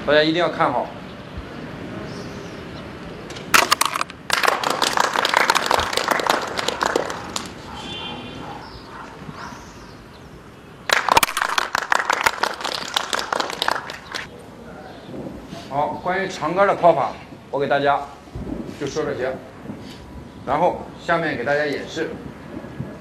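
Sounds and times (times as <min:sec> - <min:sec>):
group clapping: 0:03.6 - 0:07.8, 0:10.9 - 0:14.3.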